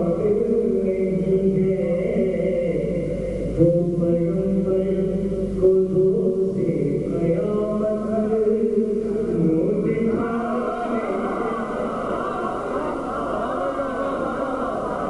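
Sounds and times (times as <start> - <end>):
man chanting into a microphone: 0.0 - 11.8.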